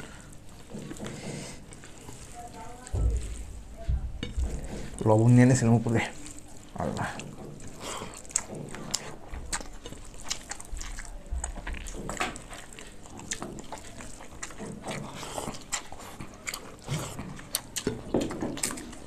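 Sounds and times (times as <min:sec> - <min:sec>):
wet squishing of rice: 0:00.0 - 0:19.0
chewing and mouth smacks: 0:04.2 - 0:19.0.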